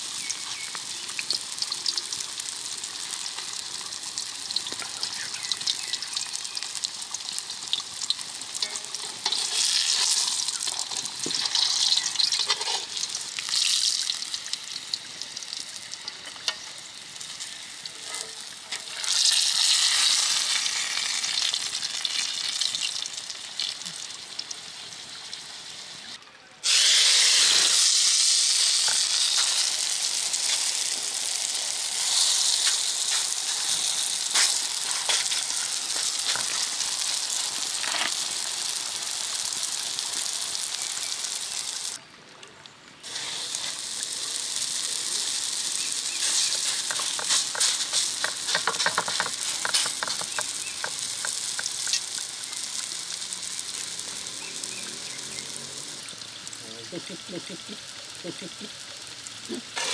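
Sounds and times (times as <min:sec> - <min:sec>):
flatbread sizzling in hot oil: 0:00.0 - 0:42.0, 0:43.0 - 0:59.9
oil popping: 0:04.1 - 0:17.5, 0:43.1 - 0:56.6.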